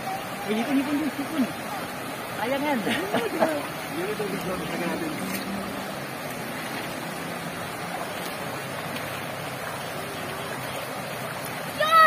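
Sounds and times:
stream rushing: 0:00.0 - 0:12.0
water spilling down cascade: 0:00.0 - 0:12.0.

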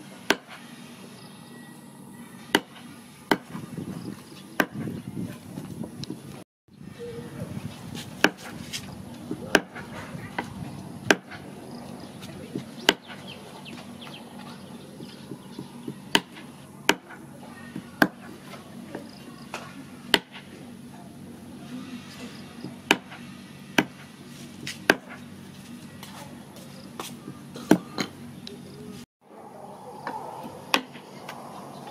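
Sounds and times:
cleaver chopping on wooden board: 0:00.3 - 0:00.6, 0:02.5 - 0:03.6, 0:04.6 - 0:04.9, 0:08.0 - 0:08.8, 0:09.5 - 0:11.5, 0:12.5 - 0:13.2, 0:15.3 - 0:17.2, 0:17.8 - 0:18.4, 0:19.5 - 0:20.5, 0:22.6 - 0:23.2, 0:23.8 - 0:24.0, 0:24.7 - 0:25.2.

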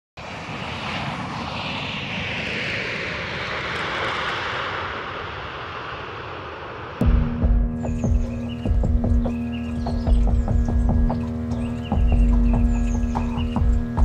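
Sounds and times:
aircraft flyover whoosh: 0:00.2 - 0:14.0
low hum with heavy thumps: 0:07.0 - 0:14.0.

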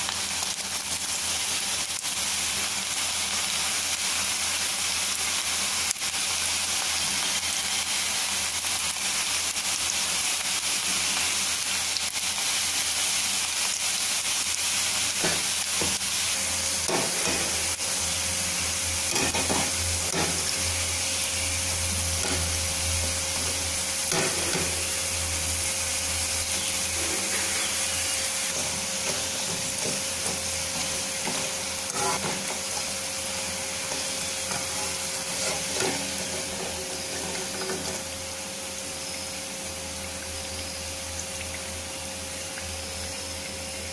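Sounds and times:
fritters sizzling in hot oil: 0:00.0 - 0:43.9
strainer scraping metal pan: 0:16.8 - 0:17.8, 0:19.1 - 0:20.7, 0:23.3 - 0:25.0, 0:26.6 - 0:32.9, 0:33.8 - 0:38.1.

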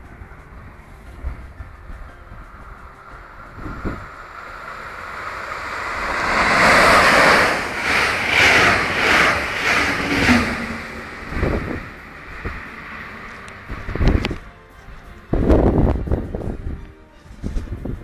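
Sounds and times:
train passing at speed: 0:00.0 - 0:18.0.

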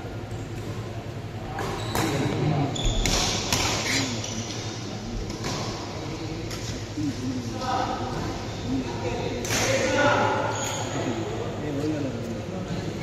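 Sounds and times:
murmur of voices: 0:00.0 - 0:13.0
shoes squeaking on court: 0:01.6 - 0:04.7.

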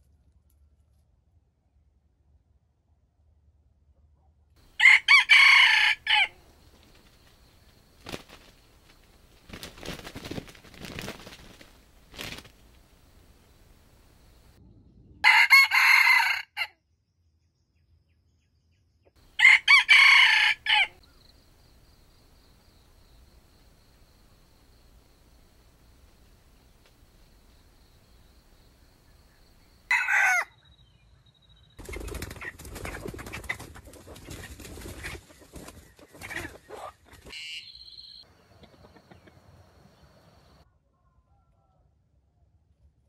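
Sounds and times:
rooster crowing: 0:04.7 - 0:06.4, 0:15.2 - 0:16.7, 0:19.3 - 0:21.0, 0:29.9 - 0:30.6
rustling and scuffling: 0:06.6 - 0:13.6.

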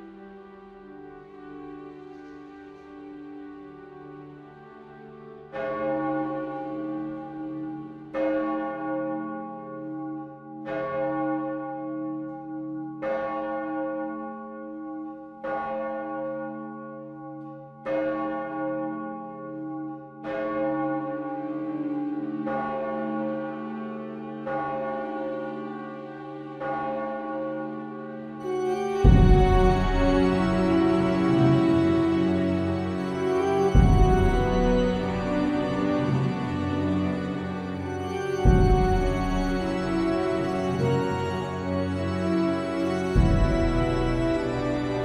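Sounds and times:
church bell tolling: 0:05.5 - 0:45.0.

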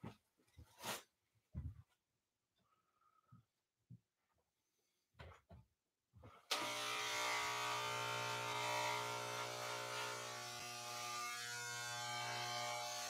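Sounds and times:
electric hair clippers buzzing: 0:06.5 - 0:13.0.

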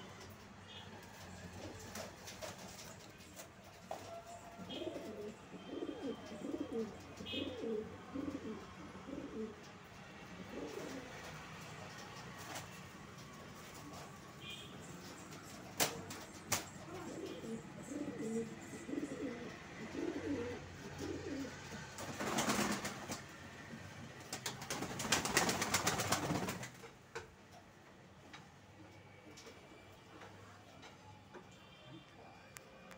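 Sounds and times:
pigeons cooing: 0:04.6 - 0:09.7, 0:10.4 - 0:11.2, 0:15.8 - 0:21.7.

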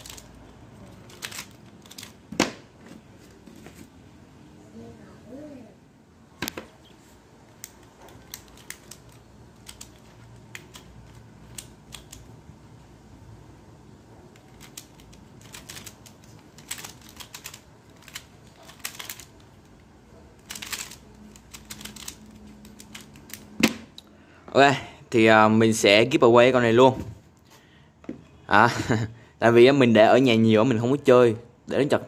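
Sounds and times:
plastic puzzle clicking: 0:01.0 - 0:02.2, 0:07.5 - 0:12.4, 0:14.3 - 0:23.5.

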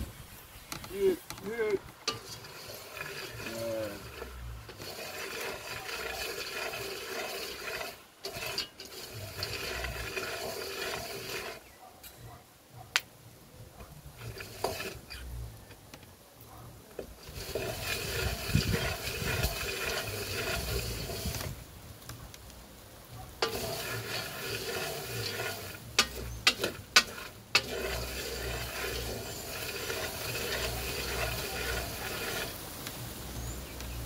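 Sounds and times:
beans rattling in iron pot: 0:00.9 - 0:11.6, 0:14.0 - 0:15.3, 0:17.0 - 0:21.6, 0:23.4 - 0:32.8.

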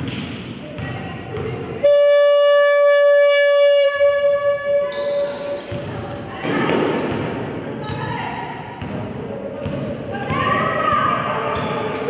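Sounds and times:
scoreboard horn blast: 0:01.8 - 0:05.3.

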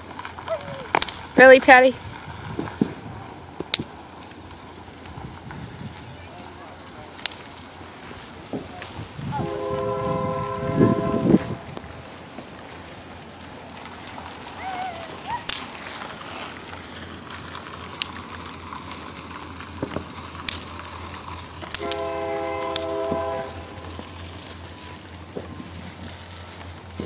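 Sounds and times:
snap pops cracking: 0:00.0 - 0:01.4, 0:03.6 - 0:05.2, 0:07.2 - 0:07.7, 0:15.3 - 0:16.1, 0:17.0 - 0:22.1
horn chord: 0:09.4 - 0:11.7, 0:21.8 - 0:23.8.

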